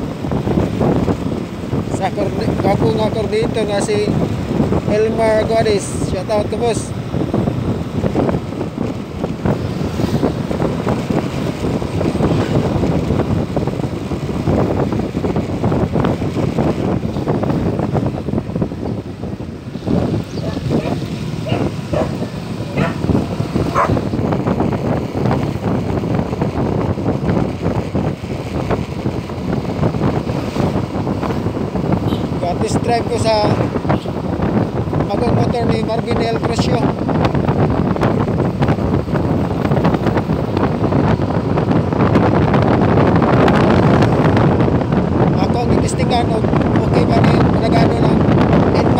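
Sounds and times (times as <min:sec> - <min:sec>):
road noise: 0:00.0 - 0:48.9
wind buffeting microphone: 0:00.0 - 0:48.9
scooter engine running: 0:19.6 - 0:24.5.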